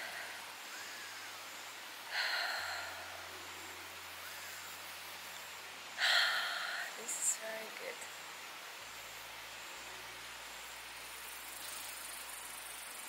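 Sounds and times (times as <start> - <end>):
woman breathing deeply: 0.0 - 4.8, 5.9 - 7.0.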